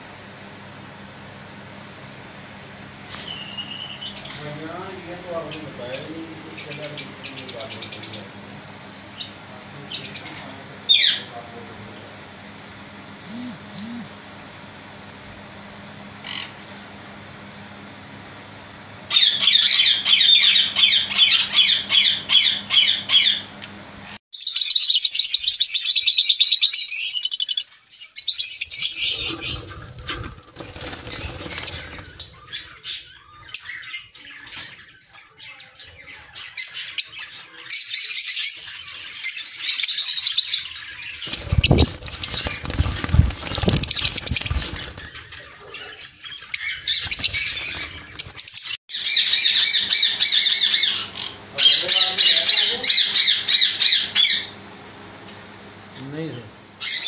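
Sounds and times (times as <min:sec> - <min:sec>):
lovebirds chirping and squawking: 0:03.0 - 0:04.5, 0:13.3 - 0:14.1, 0:19.1 - 0:54.6.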